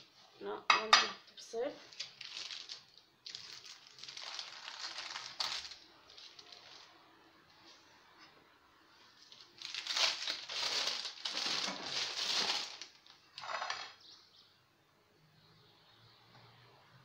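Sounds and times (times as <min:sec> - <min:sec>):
plastic sheet crinkling: 0:01.8 - 0:07.0, 0:09.1 - 0:14.0.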